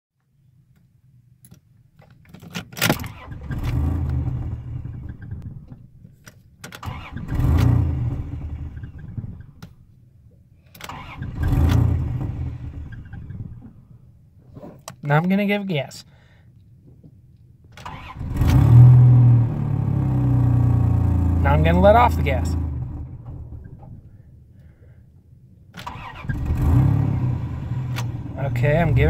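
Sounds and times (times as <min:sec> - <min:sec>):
car engine starting and revving: 0:02.9 - 0:05.8, 0:06.8 - 0:09.5, 0:10.8 - 0:13.8, 0:17.8 - 0:24.1, 0:25.8 - 0:29.0.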